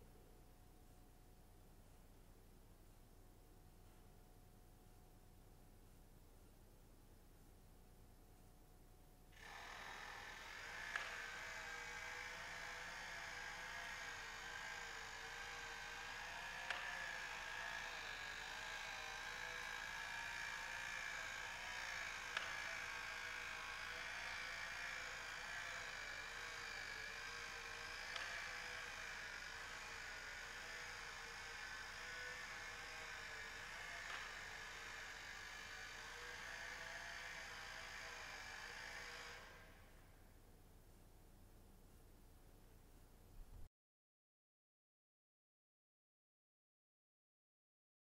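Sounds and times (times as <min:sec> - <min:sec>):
small electric motor whirring: 0:09.4 - 0:40.1.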